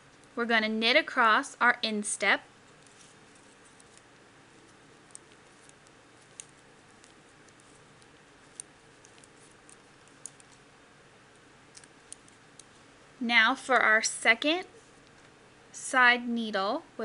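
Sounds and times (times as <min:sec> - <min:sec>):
knitting needles clicking: 0:05.0 - 0:10.6, 0:11.7 - 0:12.8.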